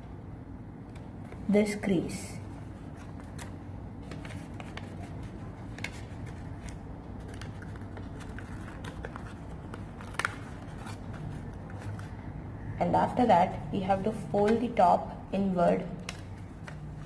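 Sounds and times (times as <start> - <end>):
steady low hum: 0.0 - 17.0
paper crinkling and creasing: 2.5 - 12.3.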